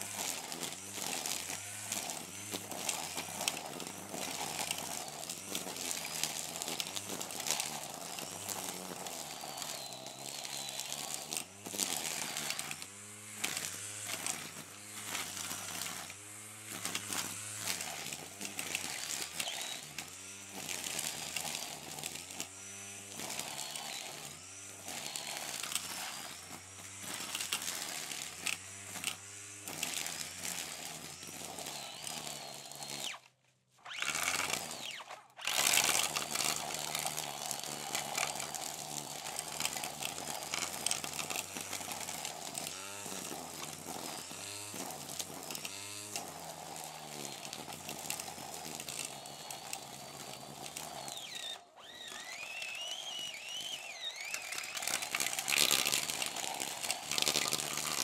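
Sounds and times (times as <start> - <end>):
brush cutter buzzing: 0.0 - 58.0.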